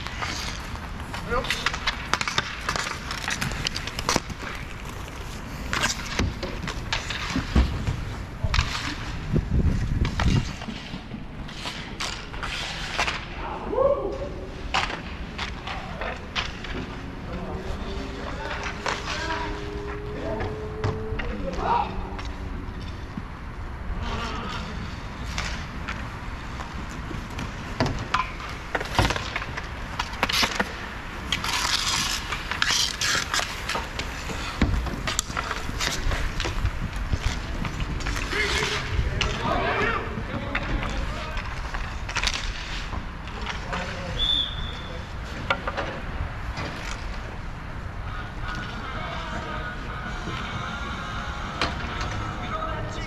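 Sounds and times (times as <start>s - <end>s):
skate scraping hiss: 0.0s - 13.3s, 28.4s - 40.0s
sticks and puck clacking: 0.0s - 13.4s, 14.1s - 53.0s
skate wheels rolling: 0.0s - 53.0s.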